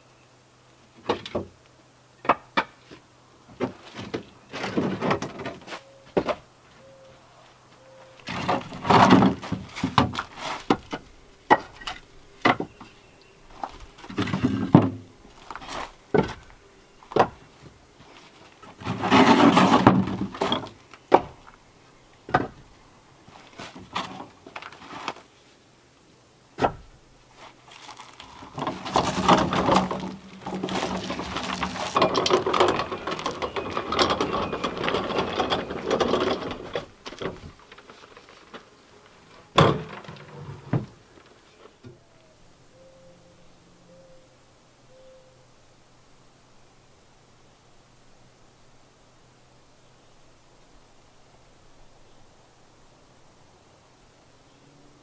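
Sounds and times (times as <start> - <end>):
firewood clattering and scraping: 2.3 - 6.4, 8.2 - 21.6, 22.3 - 25.4, 26.6 - 41.9
wooden knocks of firewood: 8.3 - 12.8, 13.7 - 16.5, 17.1 - 17.8, 18.8 - 21.5, 22.3 - 22.7, 26.6 - 27.0, 39.5 - 41.0.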